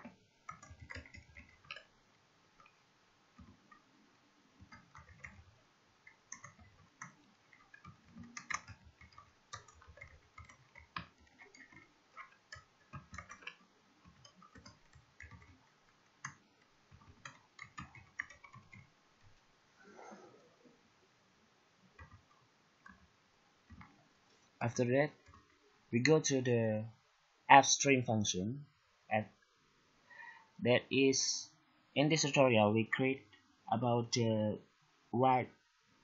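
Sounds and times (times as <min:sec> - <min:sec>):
computer keyboard keys clicking: 0:00.0 - 0:01.9, 0:04.6 - 0:18.9, 0:22.0 - 0:23.1.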